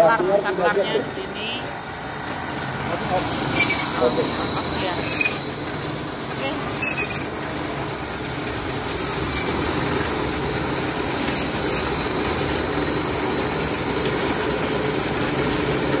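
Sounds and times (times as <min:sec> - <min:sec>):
band saw cutting bone: 0:02.9 - 0:05.6, 0:06.5 - 0:07.4, 0:08.9 - 0:12.5.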